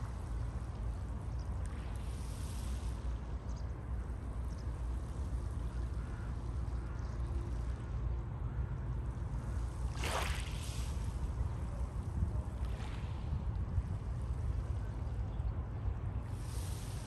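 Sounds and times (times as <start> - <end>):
low rumble of surf: 0.0 - 17.0
waves washing on shore: 9.9 - 11.4.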